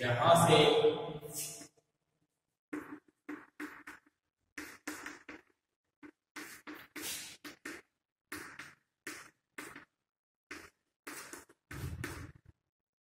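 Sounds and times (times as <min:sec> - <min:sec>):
chalk writing on blackboard: 0:02.7 - 0:12.4.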